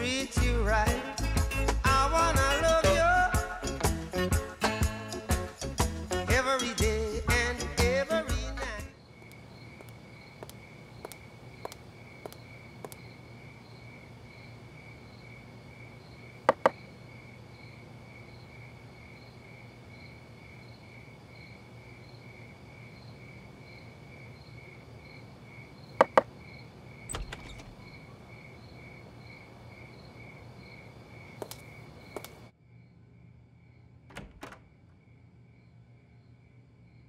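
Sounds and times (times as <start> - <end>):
crickets chirping: 8.9 - 37.0.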